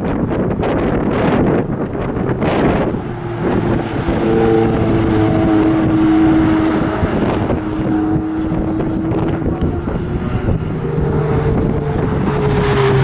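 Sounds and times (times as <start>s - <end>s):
wind buffeting microphone: 0.0s - 13.0s
car engine driving away: 0.9s - 13.0s.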